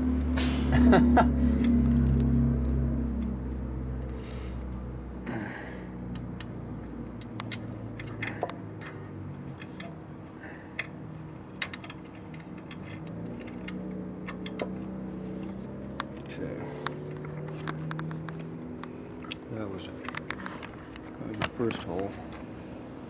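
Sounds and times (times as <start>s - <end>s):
steady low hum: 0.0s - 23.0s
small metallic clicks and taps: 6.1s - 10.0s, 10.7s - 19.4s, 20.0s - 22.1s.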